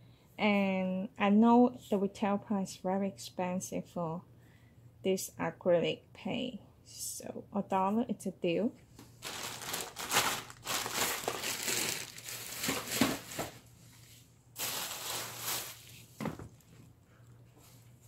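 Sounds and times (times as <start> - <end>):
plastic bags crinkling: 9.2 - 13.7, 14.6 - 16.8.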